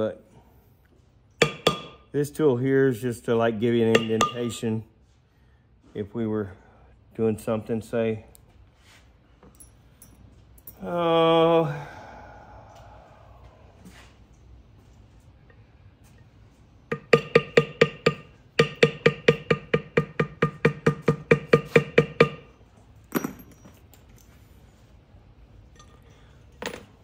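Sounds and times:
mallet tapping a leather stamp: 1.4s - 2.0s, 16.9s - 22.4s.

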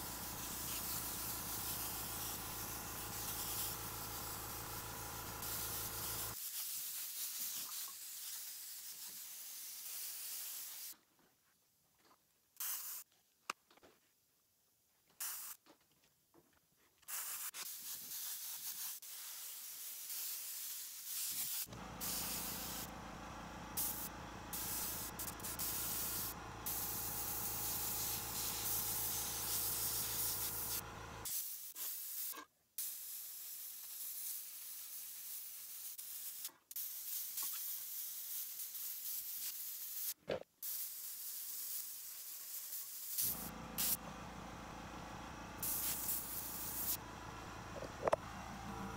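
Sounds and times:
air compressor motor humming: 0.0s - 6.4s, 21.7s - 31.3s, 43.2s - 48.9s
airbrush hissing: 0.0s - 11.0s, 17.1s - 22.9s, 23.8s - 44.0s, 45.6s - 47.0s.

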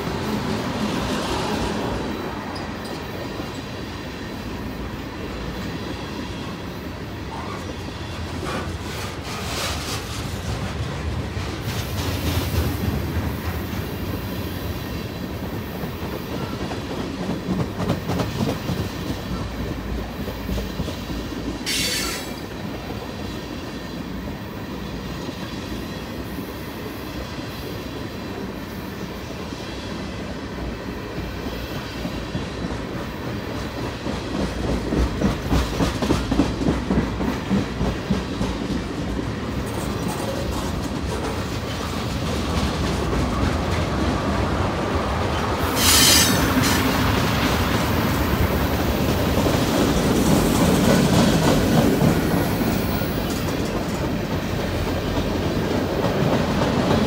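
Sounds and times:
train wheels clacking over rails: 0.0s - 57.0s
high wheel squeal: 45.7s - 46.9s.

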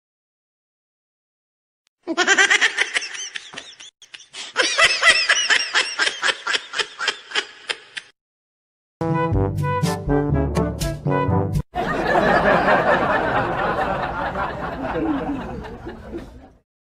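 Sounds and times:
person laughing: 2.0s - 8.1s, 14.0s - 16.6s.

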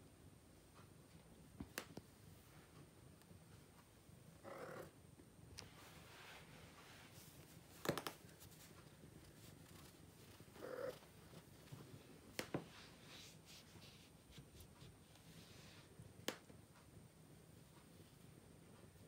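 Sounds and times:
cat purring: 4.3s - 5.0s, 8.7s - 15.8s.

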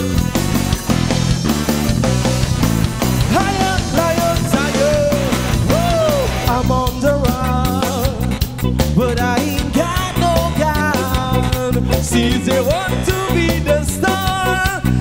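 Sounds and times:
bass guitar: 0.0s - 15.0s
drum kit: 0.0s - 15.0s
man singing into a microphone: 3.3s - 15.0s.

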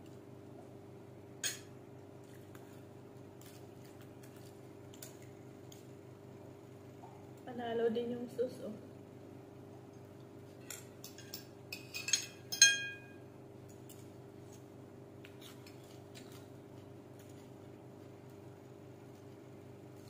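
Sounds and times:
steady low hum: 0.0s - 20.0s
cutlery clinking on a plate: 1.4s - 1.7s, 10.6s - 13.2s.

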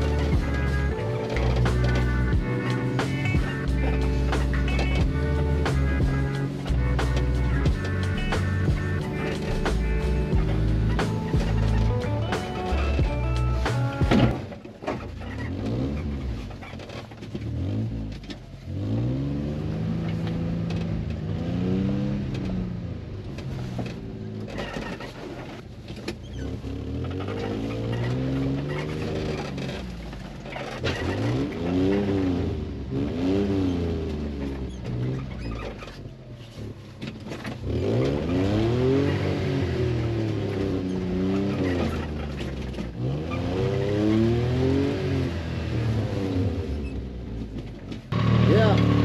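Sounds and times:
small truck engine running: 0.0s - 49.0s
body knocks and squeaks: 7.1s - 18.6s, 23.3s - 32.2s, 33.5s - 44.9s, 46.7s - 48.1s.

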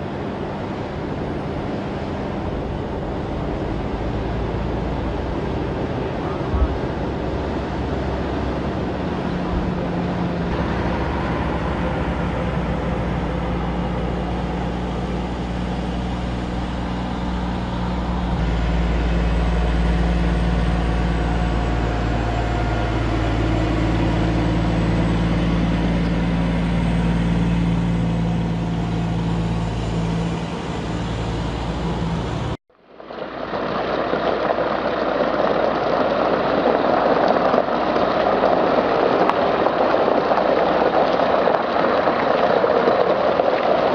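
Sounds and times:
truck diesel engines running: 0.0s - 32.6s.

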